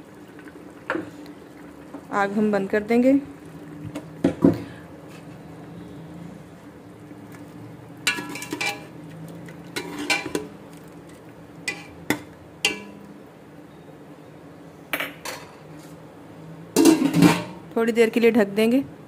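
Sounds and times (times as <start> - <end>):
low steady hum: 0.0 - 19.0
metal ladle clinking in pot: 8.1 - 8.9, 9.8 - 10.5, 11.6 - 13.0.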